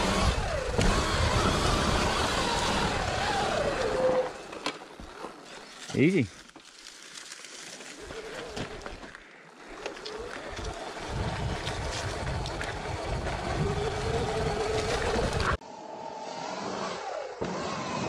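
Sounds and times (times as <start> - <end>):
electric motorbike motor whining: 0.0 - 5.3, 7.7 - 18.0
tyres clattering over stones: 4.4 - 10.8
wind buffeting microphone: 10.5 - 15.6.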